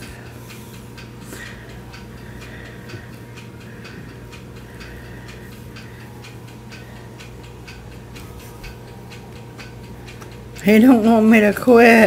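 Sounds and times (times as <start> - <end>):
regular ticking: 0.0 - 12.0
steady low hum: 0.0 - 12.0.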